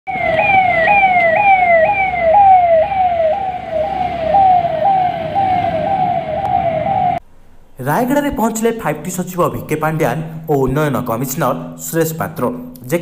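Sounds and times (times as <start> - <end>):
vehicle siren wailing: 0.1 - 7.2.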